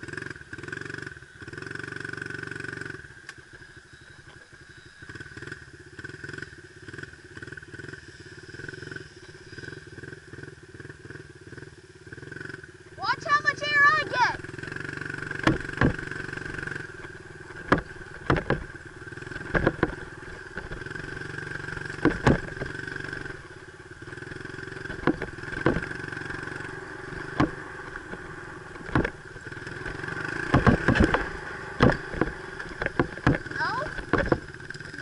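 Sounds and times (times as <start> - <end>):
dirt bike engine running: 0.0 - 35.0
sharp knocks: 15.3 - 18.7, 19.3 - 21.0, 21.8 - 23.2, 24.8 - 29.2, 29.8 - 34.5.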